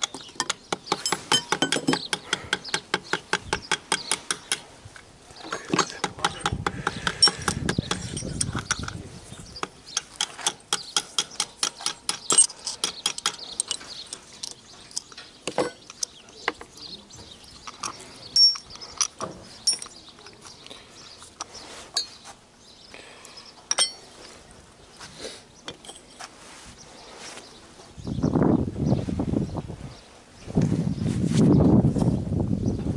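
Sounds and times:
metal parts clinking: 7.2s - 9.0s, 11.6s - 16.2s, 17.6s - 20.0s, 23.7s - 24.1s, 25.7s - 26.2s.

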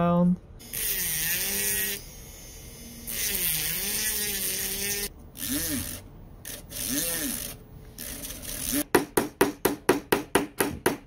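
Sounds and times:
rotary tool motor whine: 0.6s - 8.9s.

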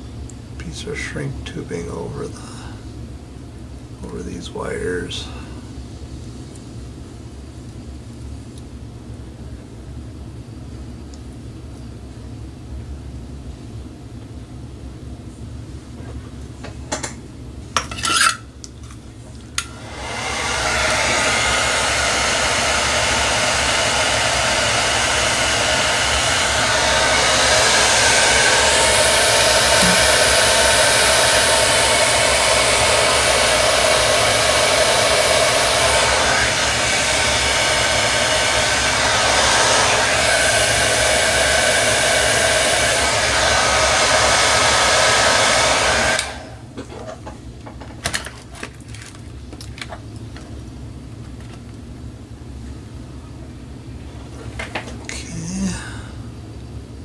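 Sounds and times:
heat gun blowing air: 19.6s - 46.6s.

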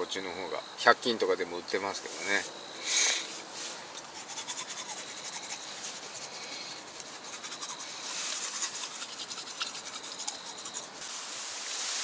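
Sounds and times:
toothbrush scrubbing teeth: 4.0s - 11.1s.

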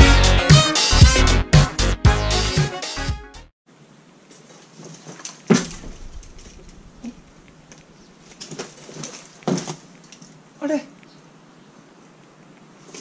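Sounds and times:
music: 0.0s - 3.5s.

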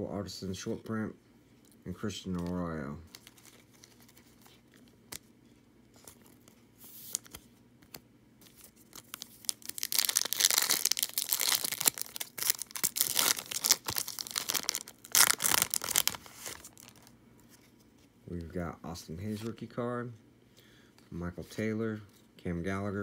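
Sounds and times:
foil wrapper tearing and crinkling: 8.4s - 17.1s.

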